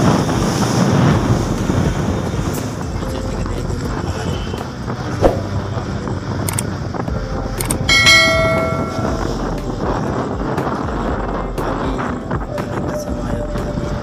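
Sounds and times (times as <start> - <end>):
motorboat engine: 0.0 - 14.0
wind and water: 0.0 - 14.0
bell-like metallic ring: 7.9 - 9.2.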